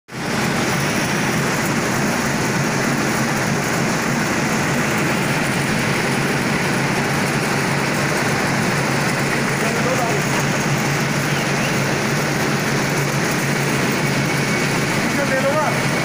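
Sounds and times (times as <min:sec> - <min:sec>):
stranding machine running: 0:00.1 - 0:16.0.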